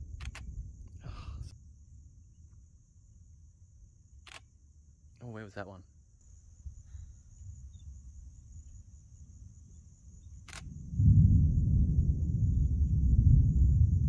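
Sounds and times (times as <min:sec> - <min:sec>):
thunder rumble: 0:00.0 - 0:04.2, 0:07.4 - 0:14.0
sharp click: 0:00.2 - 0:00.5, 0:04.2 - 0:04.5, 0:10.4 - 0:10.7.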